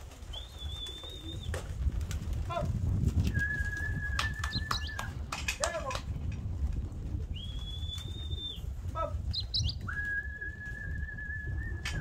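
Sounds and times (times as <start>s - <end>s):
pigeon wings fluttering: 0.0s - 12.0s
person whistling: 9.9s - 12.0s.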